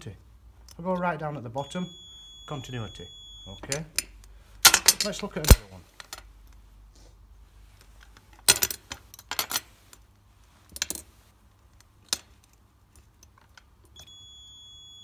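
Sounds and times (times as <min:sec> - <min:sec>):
small metal parts clinking: 0:03.7 - 0:06.3, 0:08.4 - 0:10.0, 0:10.7 - 0:11.1.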